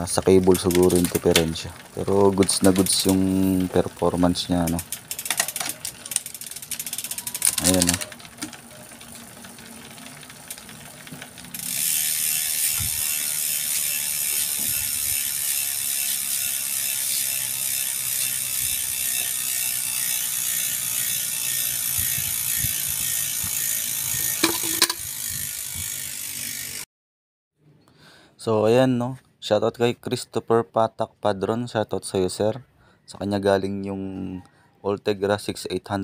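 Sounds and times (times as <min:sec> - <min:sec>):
bicycle drivetrain turning: 0:00.0 - 0:26.9
freehub ratcheting buzz: 0:00.7 - 0:26.8.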